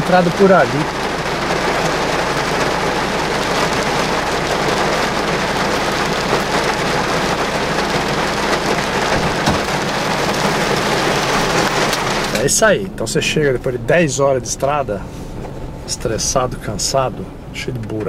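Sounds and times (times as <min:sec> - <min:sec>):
steady rushing noise: 0:00.0 - 0:17.7.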